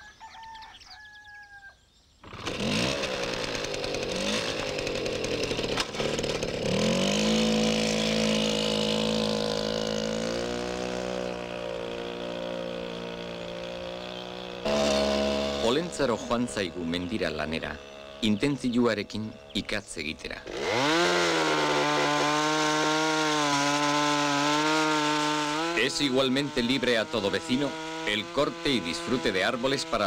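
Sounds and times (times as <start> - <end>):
birds chirping: 0.0 - 2.3, 7.3 - 10.0, 12.8 - 21.0, 25.6 - 30.0
moped engine running: 2.3 - 30.0.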